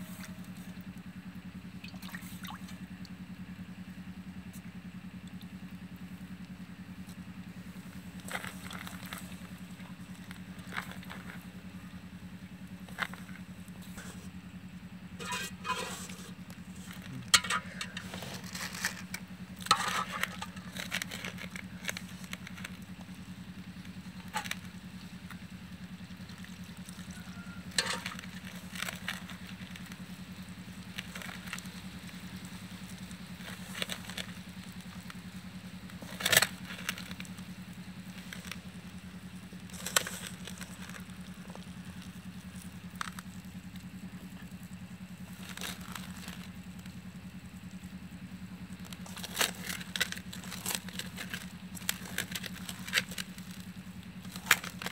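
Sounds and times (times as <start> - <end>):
steady low hum: 0.0 - 54.9
hands kneading in steel bowl: 7.7 - 25.5, 26.1 - 35.2, 48.8 - 54.9.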